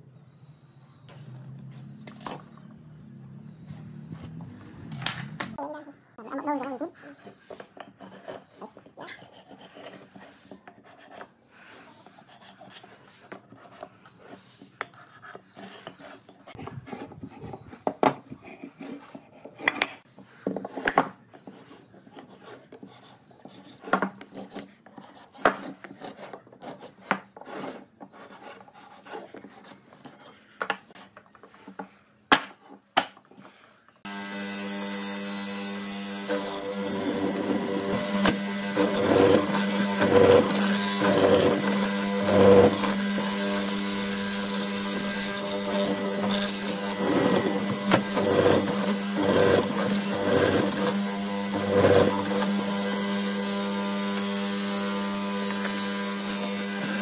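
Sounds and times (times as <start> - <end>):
marking gauge scratching wood: 7.1 - 20.2, 34.6 - 57.0
mortiser motor running: 34.1 - 57.0.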